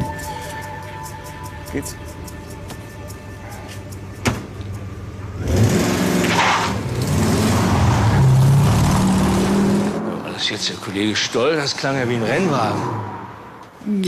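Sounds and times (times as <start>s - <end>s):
car engine revving: 5.1s - 13.6s.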